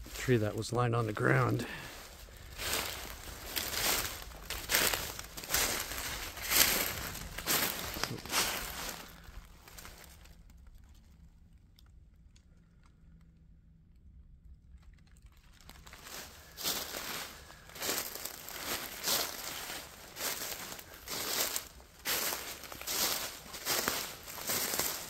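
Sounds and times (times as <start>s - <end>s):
footsteps crunching dry leaves: 0.0s - 10.3s, 15.5s - 25.0s.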